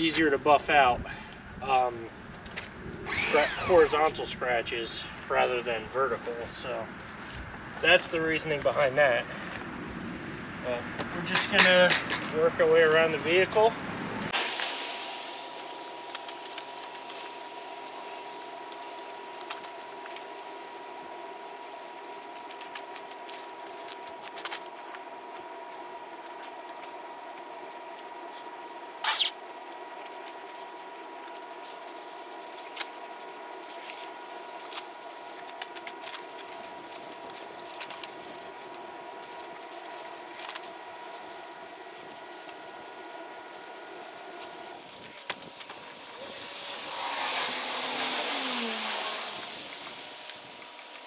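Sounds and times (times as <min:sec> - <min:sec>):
steady hum: 0:13.0 - 0:51.0.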